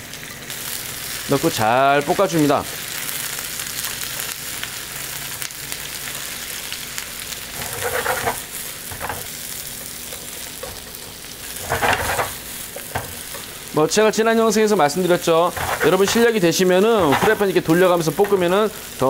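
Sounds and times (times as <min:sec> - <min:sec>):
vegetables sizzling in oil: 0:00.0 - 0:19.0
chopsticks scraping pan: 0:07.5 - 0:13.5, 0:15.2 - 0:18.6.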